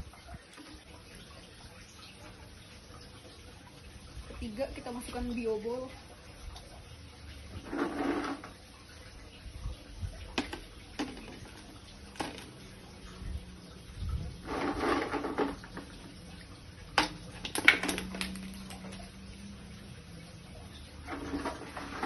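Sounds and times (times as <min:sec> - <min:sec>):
plastic balls clicking and clattering: 0:10.4 - 0:12.6, 0:17.0 - 0:19.0.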